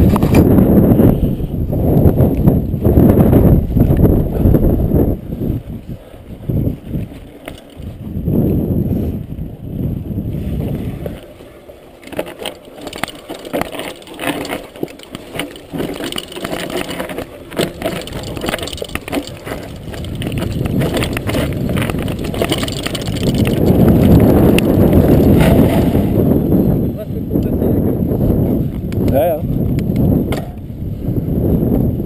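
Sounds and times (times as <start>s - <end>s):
wind rush on microphone: 0.0s - 32.0s
bike rattling over rocks: 6.5s - 8.2s, 10.6s - 26.9s
tyres crunching over stones: 12.0s - 26.3s.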